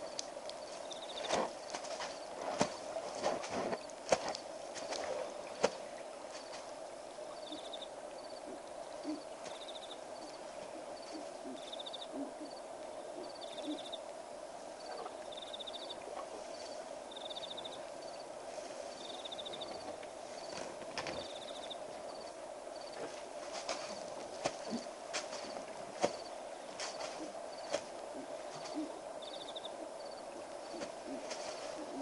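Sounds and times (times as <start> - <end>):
night animal chorus drone: 7.2 - 18.2, 26.2 - 32.0.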